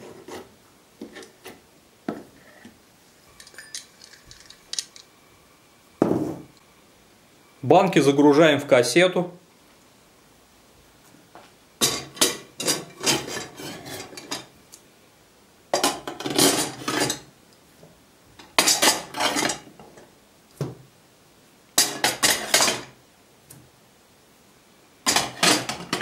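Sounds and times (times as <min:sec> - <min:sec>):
glass jars clinking on metal rack: 0:21.8 - 0:22.9, 0:25.1 - 0:26.0.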